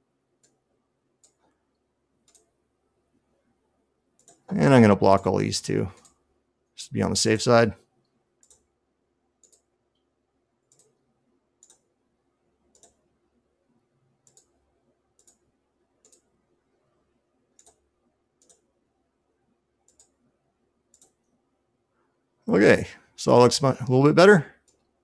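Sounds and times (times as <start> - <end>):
computer mouse clicks: 0.4 - 0.6, 1.2 - 2.6, 4.2 - 4.5, 6.0 - 6.2, 8.0 - 8.7, 9.4 - 12.0, 12.7 - 13.1, 14.2 - 16.3, 17.5 - 18.7, 19.8 - 20.2, 20.9 - 21.4, 24.6 - 25.0.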